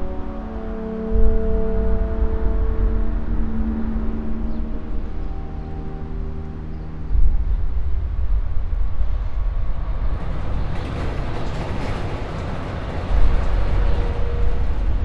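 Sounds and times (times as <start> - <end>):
deep rumble: 0.0 - 15.0.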